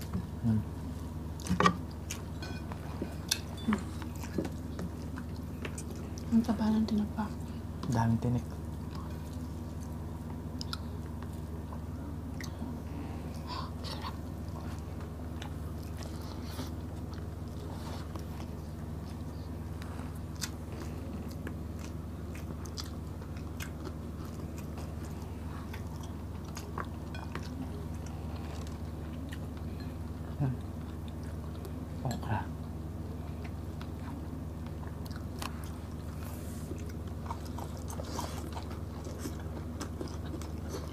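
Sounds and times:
wet chewing: 13.3s - 29.9s, 33.3s - 40.9s.

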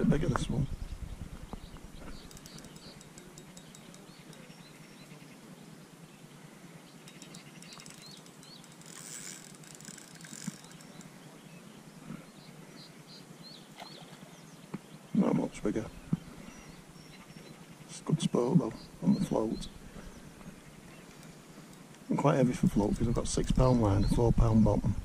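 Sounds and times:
fishing reel clicking: 2.2s - 4.5s, 7.1s - 11.1s.

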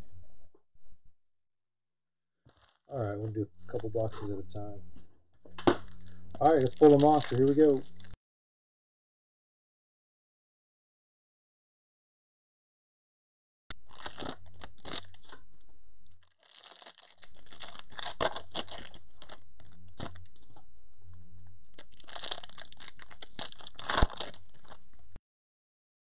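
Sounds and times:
foil wrappers crinkling and tearing: 2.5s - 2.9s, 5.8s - 8.2s, 13.7s - 15.4s, 16.2s - 20.6s, 21.6s - 24.9s.

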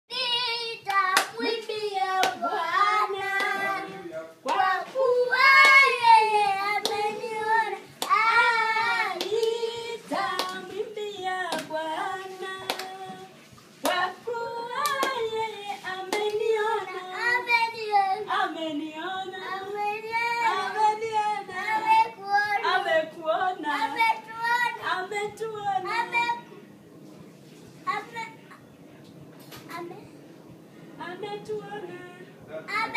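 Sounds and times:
boy singing: 0.1s - 13.3s, 13.9s - 26.4s
woman singing: 0.1s - 26.4s, 31.0s - 32.8s
hand claps: 0.9s - 1.4s, 9.2s - 9.6s, 10.3s - 10.6s, 12.7s - 13.0s, 14.8s - 15.2s.

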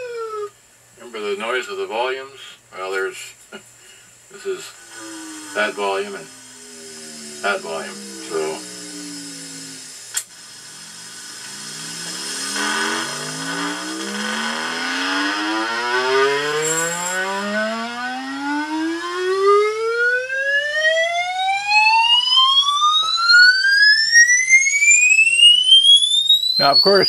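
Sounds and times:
crackle of volume control: 4.3s - 17.5s, 24.4s - 27.0s
rising test tone sweep: 4.3s - 27.0s.

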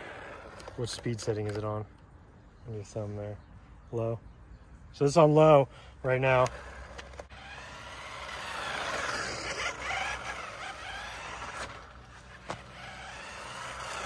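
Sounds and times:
electric motor whining: 0.0s - 1.6s, 6.2s - 14.0s.

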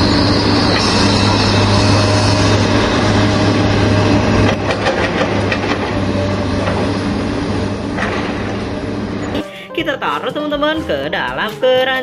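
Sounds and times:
diesel engine running: 0.0s - 11.1s
knocks and clatter: 4.4s - 6.0s, 7.9s - 8.6s.

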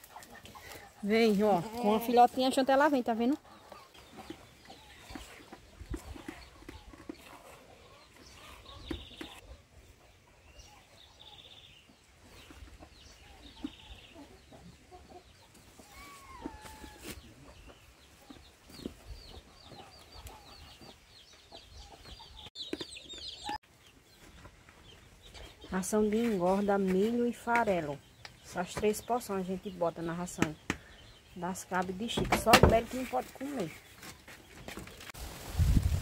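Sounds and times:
chickens clucking: 0.0s - 1.8s, 3.1s - 33.7s.

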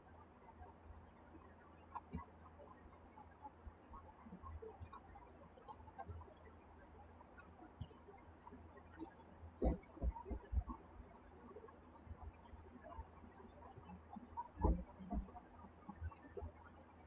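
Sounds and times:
computer mouse clicking: 1.9s - 2.3s, 4.7s - 6.6s, 7.4s - 8.1s, 8.9s - 10.7s, 14.6s - 15.3s, 15.9s - 16.6s.

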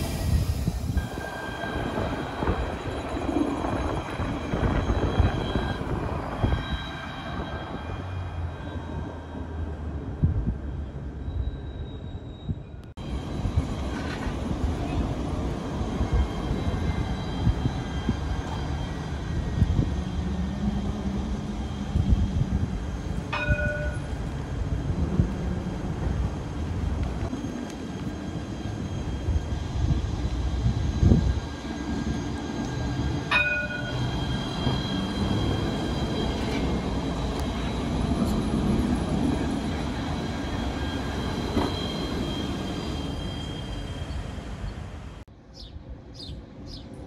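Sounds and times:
tram running rumble: 0.0s - 47.0s
tram bell dings: 1.0s - 9.9s, 23.0s - 24.4s, 32.1s - 43.8s.

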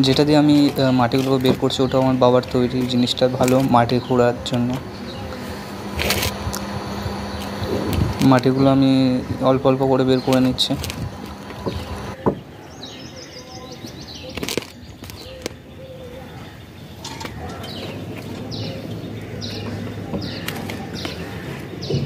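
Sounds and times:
digging tool scraping soil: 0.0s - 4.8s, 5.9s - 8.6s.

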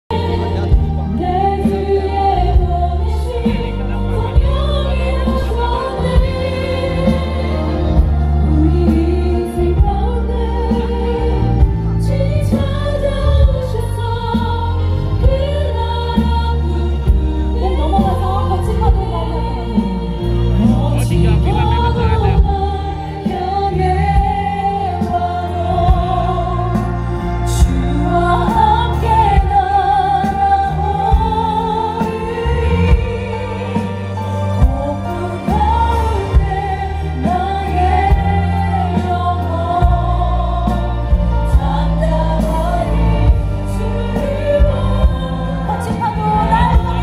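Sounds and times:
band accompaniment: 0.1s - 47.0s
choir singing worship song: 0.1s - 47.0s
steady bass line: 0.1s - 47.0s.

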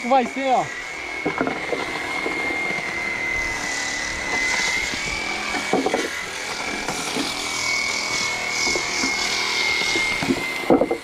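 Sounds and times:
machine whine: 0.0s - 11.0s
wooden planks knocking: 10.2s - 11.0s.

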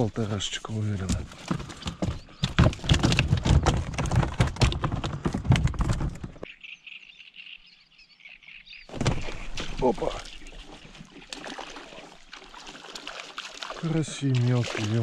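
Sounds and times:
fish splashing in water: 8.9s - 15.0s.

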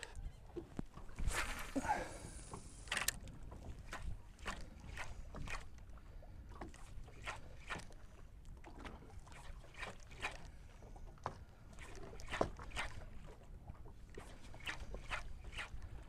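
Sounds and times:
waves slapping boat hull: 0.0s - 16.0s.

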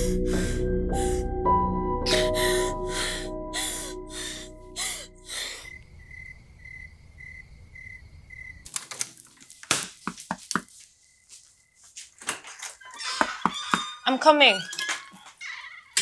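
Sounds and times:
cricket chirping: 4.3s - 8.7s, 10.6s - 12.0s.

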